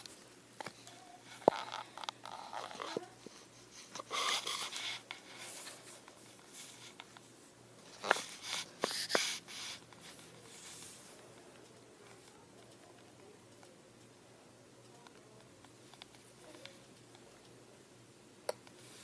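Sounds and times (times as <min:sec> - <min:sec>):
soft rustling of clothing: 0:00.0 - 0:13.4.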